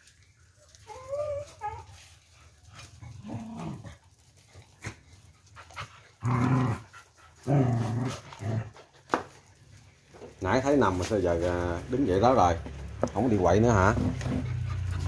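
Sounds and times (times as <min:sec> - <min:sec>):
dog whining: 0:00.8 - 0:02.0
dogs growling: 0:02.5 - 0:09.6, 0:13.1 - 0:15.0.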